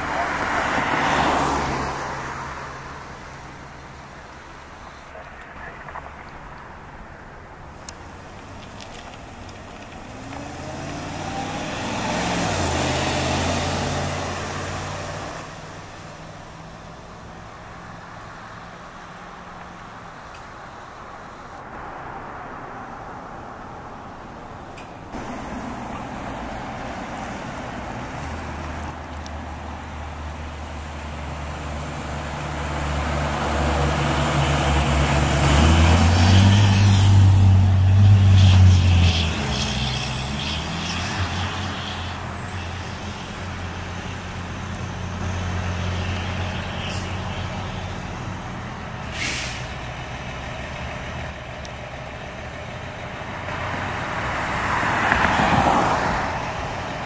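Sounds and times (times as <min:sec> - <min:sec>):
diesel truck engines running: 0:00.0 - 0:21.6, 0:22.8 - 0:57.0
air brake hiss: 0:49.0 - 0:49.8.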